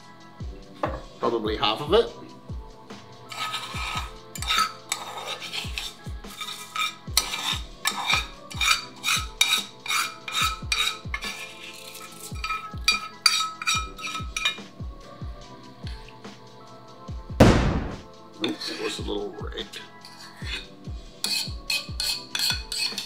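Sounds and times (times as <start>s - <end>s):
background music with kick drum: 0.0s - 23.0s
metal spoon scraping skillet: 3.2s - 14.7s, 18.4s - 19.0s, 19.7s - 23.0s.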